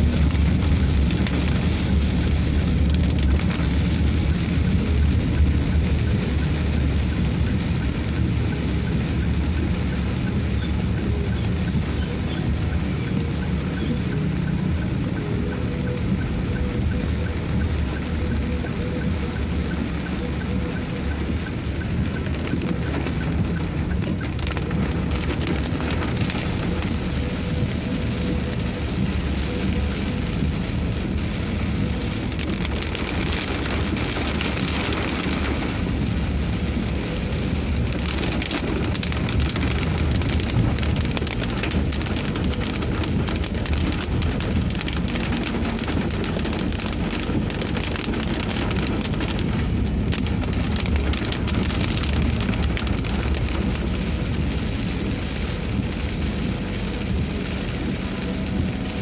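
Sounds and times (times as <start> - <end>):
car tyres rumbling on wet road: 0.0 - 59.0
rain on a car: 0.0 - 59.0.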